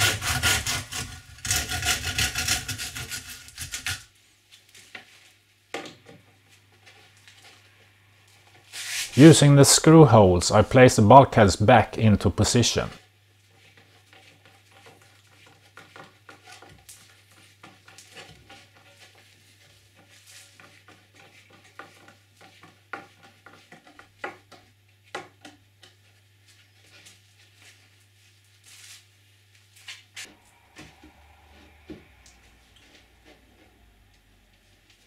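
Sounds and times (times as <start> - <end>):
faint steady hum: 26.4 - 35.0.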